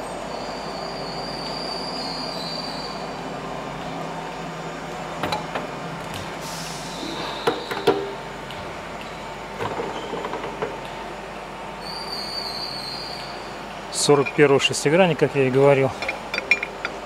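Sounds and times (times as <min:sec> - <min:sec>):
metal wrench knocking and clinking: 0:14.2 - 0:14.5, 0:16.0 - 0:17.0.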